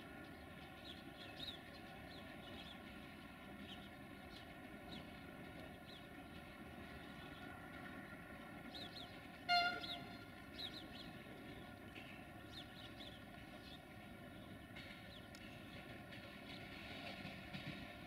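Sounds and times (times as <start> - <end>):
birds chirping: 0.1 - 17.7
locomotive horn toot: 9.5 - 10.3.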